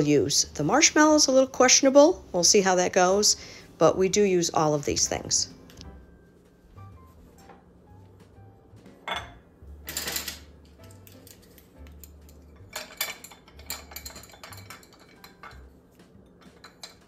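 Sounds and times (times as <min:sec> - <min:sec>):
metal spoons clinking on ceramic: 0:09.1 - 0:15.7, 0:16.4 - 0:17.0.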